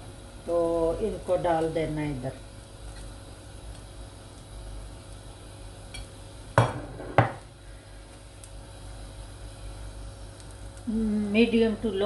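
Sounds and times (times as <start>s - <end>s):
low steady background noise: 0.0s - 12.0s.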